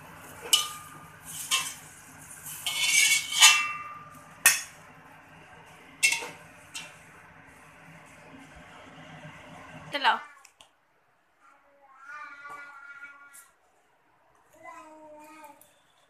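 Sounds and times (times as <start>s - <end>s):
metal spatula scraping a wok: 0.4s - 4.6s.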